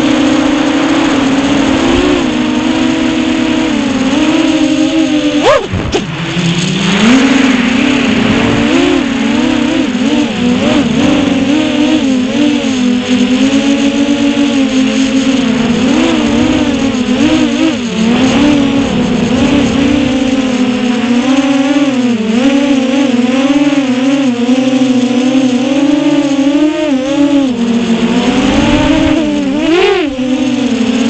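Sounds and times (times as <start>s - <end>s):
quadcopter motors whining: 0.0s - 31.0s.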